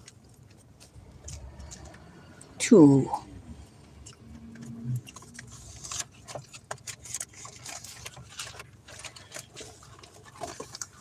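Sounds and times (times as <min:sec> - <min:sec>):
hands handling objects: 0:04.6 - 0:11.0.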